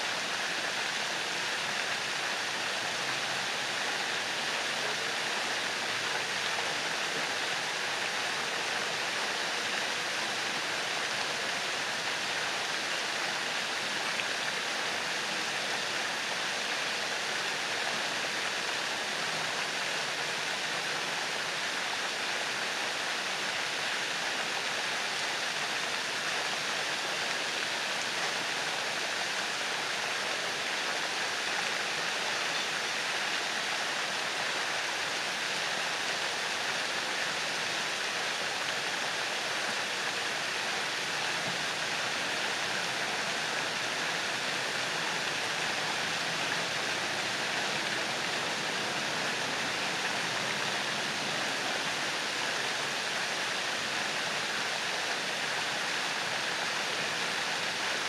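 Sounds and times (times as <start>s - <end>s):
fountain water splashing: 0.0s - 58.0s.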